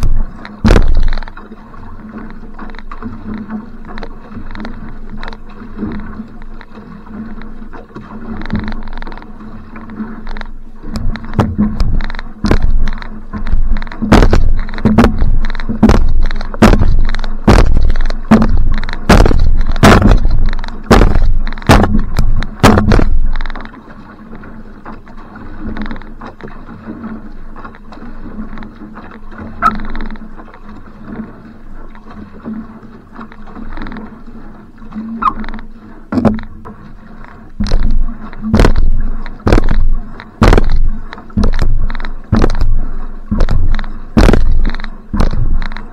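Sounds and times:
sharp knocks on microphone: 0.0 - 1.2, 11.3 - 12.8, 13.4 - 23.2, 36.1 - 36.5, 37.6 - 40.8, 41.4 - 45.8
paddle strokes splashing: 0.0 - 45.9
water rushing along a canoe: 0.0 - 45.9.

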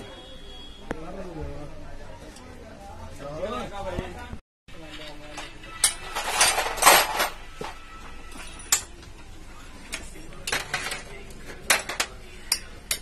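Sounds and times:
metal parts rattling scrape: 4.8 - 8.9.

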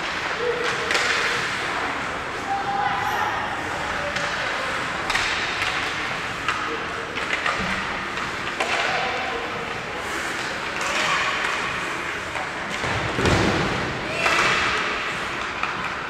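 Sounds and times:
hockey sticks and puck clacking: 0.0 - 2.0, 3.8 - 16.0
skates scraping on ice: 10.0 - 11.1.

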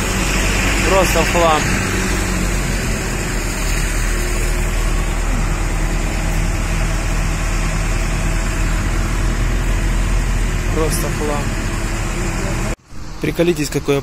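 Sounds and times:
large engine idling: 0.0 - 13.8.

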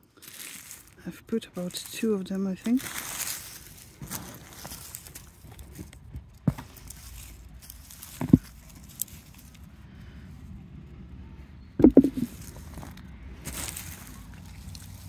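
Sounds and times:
dull knocks and thumps: 8.2 - 8.5, 11.8 - 12.3.

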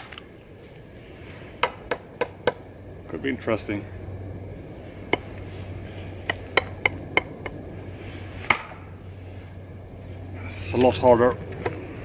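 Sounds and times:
knife chopping dry wood: 8.4 - 8.8.

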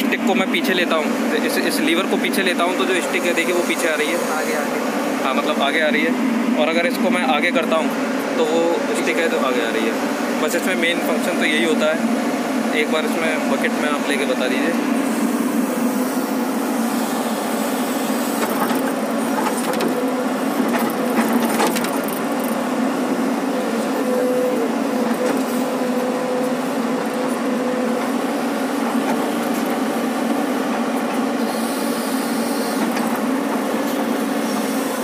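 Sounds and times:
excavator engine and hydraulics: 0.0 - 35.0
sharp clicks and knocks: 18.4 - 20.0, 20.6 - 22.6.

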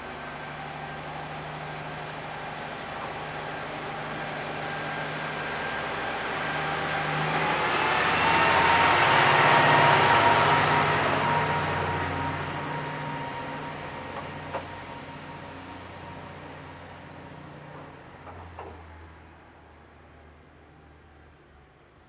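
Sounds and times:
vehicle passing by: 5.2 - 14.0.

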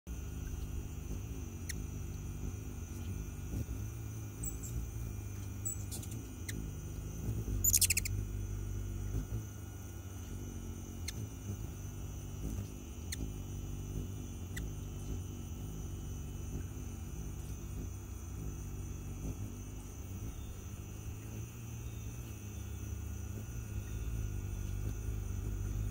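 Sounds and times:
hummingbird wingbeats humming: 0.1 - 25.9
faint high bird chips: 7.6 - 8.2
rapid clicking bird chatter: 7.6 - 8.2.

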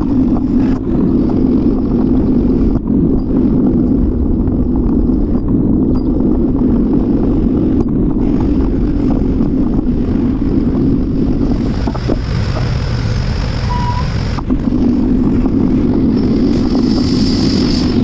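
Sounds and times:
bicycle wind and rolling noise: 0.0 - 18.0
city street traffic: 0.0 - 18.0
brief high-pitched tone: 13.7 - 14.1.

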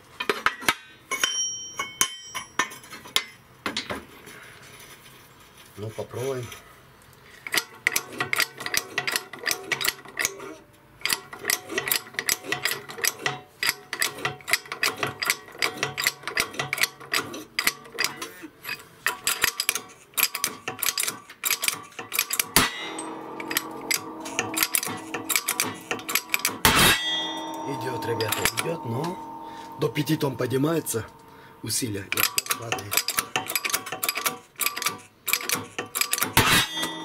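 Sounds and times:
steady hum: 22.6 - 32.4.

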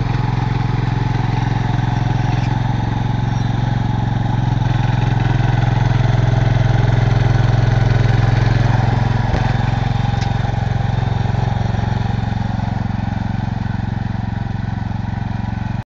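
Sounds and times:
tractor engine running: 0.0 - 15.8.

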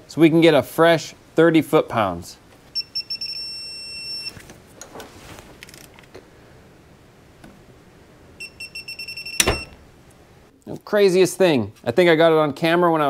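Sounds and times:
torque wrench beeping: 2.8 - 4.3, 8.4 - 9.8.

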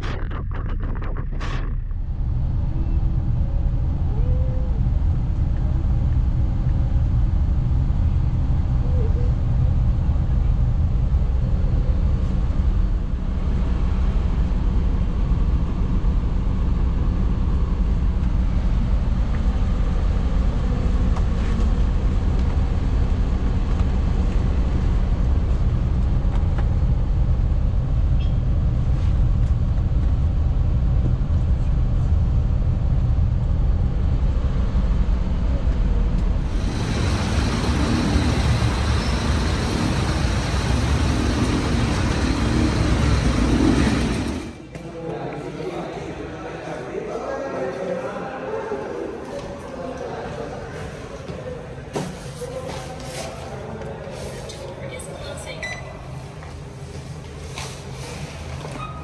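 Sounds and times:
vehicle engine rumbling: 0.0 - 44.8
rushing hiss: 36.5 - 44.5.

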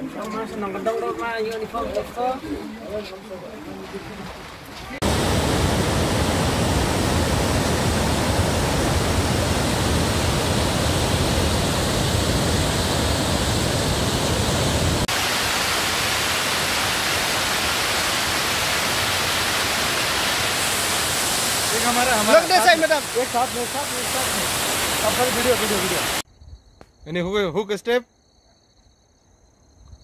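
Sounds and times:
waterfall rushing: 3.8 - 26.2.

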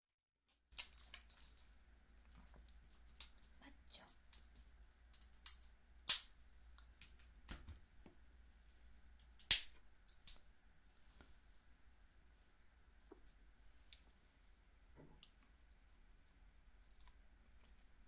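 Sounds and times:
shell cracking and snapping: 0.7 - 1.5, 2.3 - 6.4, 9.2 - 10.4.

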